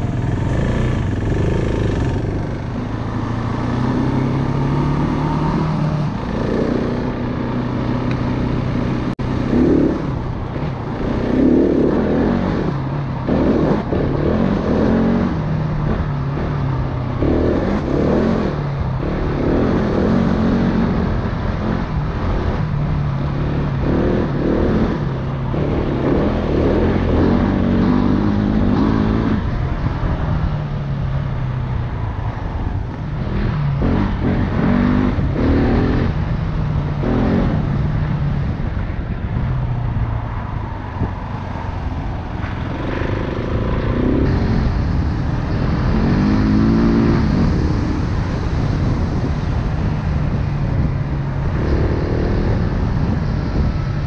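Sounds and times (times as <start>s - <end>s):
dirt bike engine revving: 0.0s - 16.6s, 23.2s - 29.5s, 42.5s - 49.1s.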